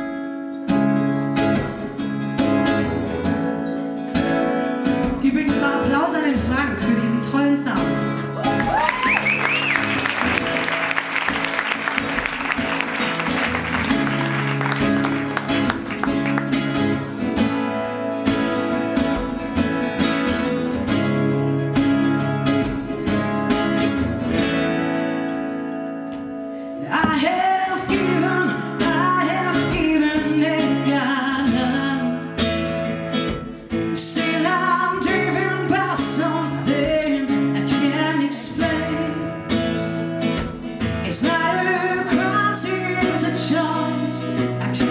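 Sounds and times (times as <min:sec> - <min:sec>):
acoustic guitar: 0:00.0 - 0:44.9
woman singing: 0:05.1 - 0:08.3, 0:26.8 - 0:32.3, 0:34.0 - 0:39.4, 0:41.0 - 0:44.9.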